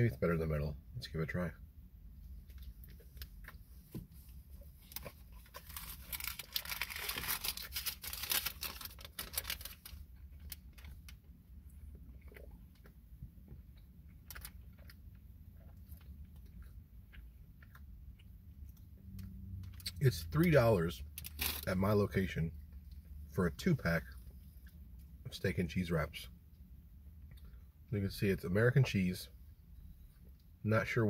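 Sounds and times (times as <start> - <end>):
man chewing with wet clicks: 10.2 - 20.0.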